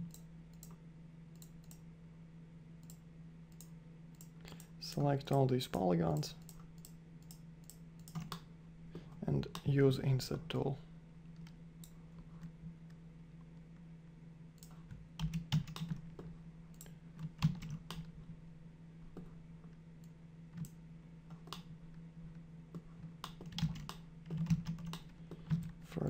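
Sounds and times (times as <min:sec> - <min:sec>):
steady hum: 0:00.0 - 0:26.0
keyboard and mouse clicks: 0:06.1 - 0:08.5, 0:14.6 - 0:18.1, 0:20.0 - 0:21.7, 0:22.7 - 0:25.7.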